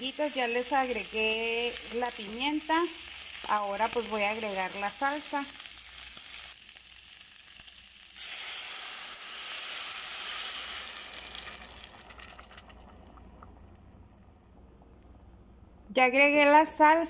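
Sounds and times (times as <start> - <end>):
sauce sizzling in hot pan: 0.0 - 13.2.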